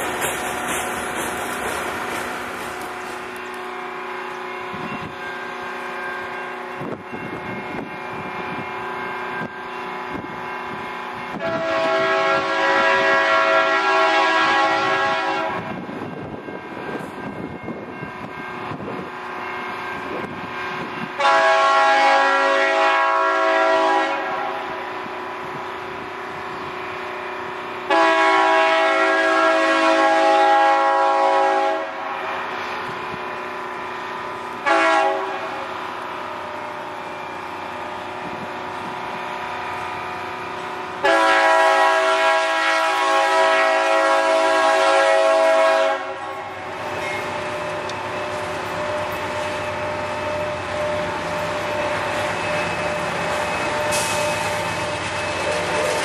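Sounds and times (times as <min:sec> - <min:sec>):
locomotive air horn blasts: 0:11.3 - 0:15.8, 0:21.1 - 0:24.9, 0:27.8 - 0:32.6, 0:34.6 - 0:35.8, 0:40.9 - 0:47.0.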